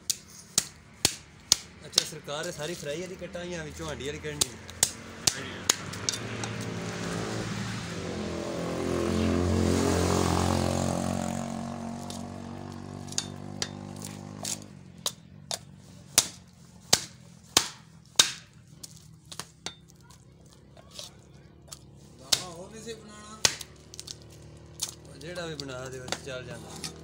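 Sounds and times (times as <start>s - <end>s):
cleaver chopping on wooden block: 0.0s - 2.2s, 4.4s - 6.8s, 13.0s - 18.6s, 21.7s - 22.6s, 23.4s - 24.2s, 26.0s - 27.0s
engine humming: 2.9s - 27.0s.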